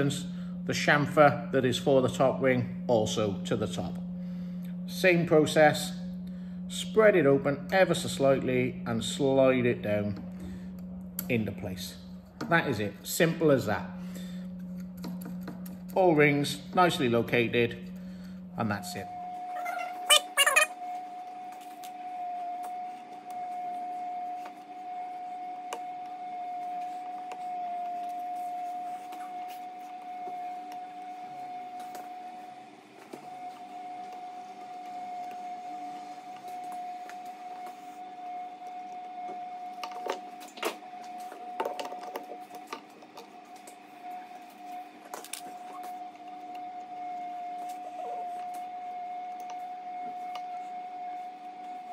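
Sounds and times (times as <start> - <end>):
steady high-pitched hum: 0.0 - 51.9.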